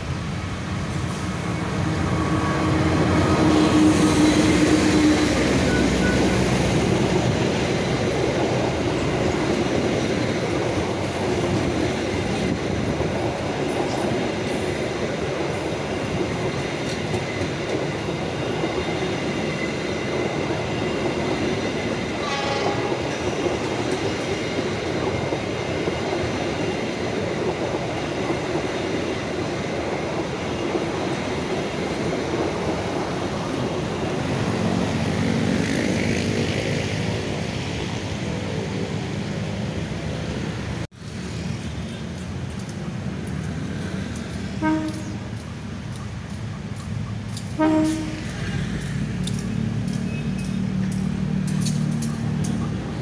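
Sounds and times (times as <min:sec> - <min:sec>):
diesel locomotive engine: 0:00.0 - 0:53.0
train wheels rumbling on rail: 0:00.0 - 0:53.0.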